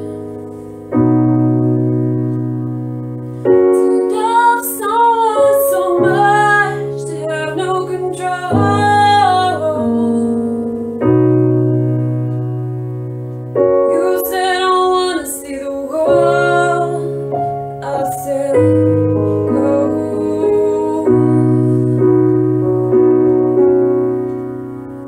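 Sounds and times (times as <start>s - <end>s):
piano chords: 0.0s - 25.0s
woman singing: 3.7s - 10.6s, 13.9s - 22.1s.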